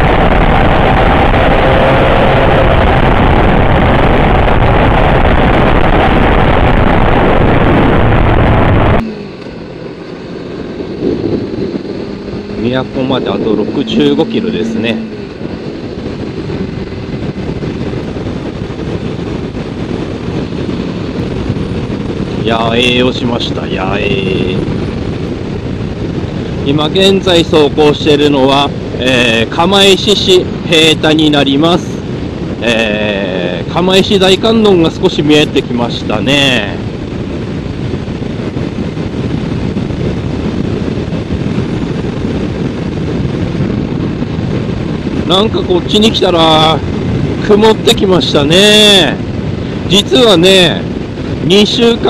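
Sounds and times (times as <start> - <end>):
motorcycle engine riding: 0.0 - 29.6, 36.3 - 51.6
road noise: 0.0 - 52.0
wind rush on microphone: 0.0 - 52.0
motorcycle engine running: 8.0 - 22.5.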